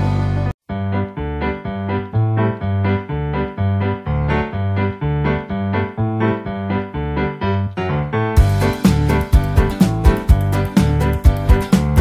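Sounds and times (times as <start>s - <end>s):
keyboard melody: 0.0s - 12.0s.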